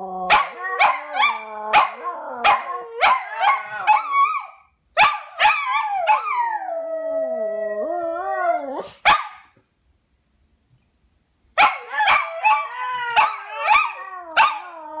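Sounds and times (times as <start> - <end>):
dogs howling: 11.8 - 15.0.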